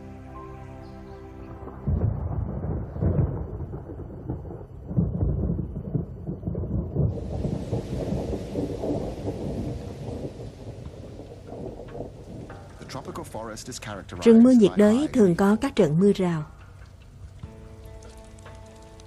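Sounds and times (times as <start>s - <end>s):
thunder rumbling: 1.8s - 16.6s
heavy rain hiss: 7.0s - 15.8s.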